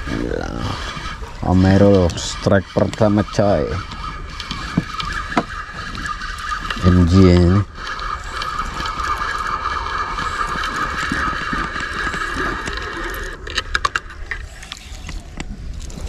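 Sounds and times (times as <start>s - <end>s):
fishing reel whirring: 0.0s - 16.0s.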